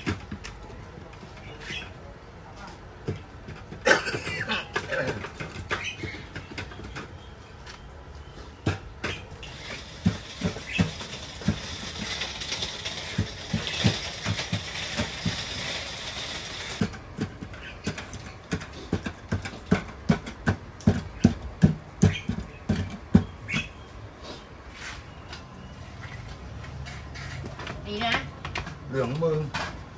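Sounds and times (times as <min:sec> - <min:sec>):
food preparation knocks and clicks: 0:00.0 - 0:01.6, 0:02.8 - 0:07.9, 0:08.5 - 0:23.8.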